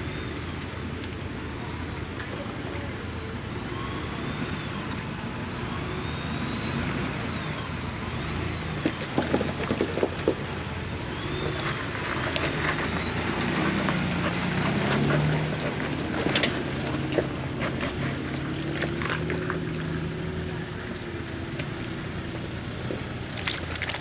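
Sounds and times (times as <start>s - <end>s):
vehicle engine hum: 0.0s - 24.0s
vehicle rattling over rocks: 7.2s - 24.0s.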